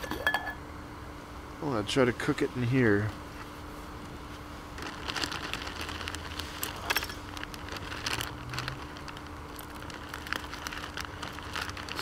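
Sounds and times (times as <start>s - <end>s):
plastic bag crinkling: 4.3s - 12.0s.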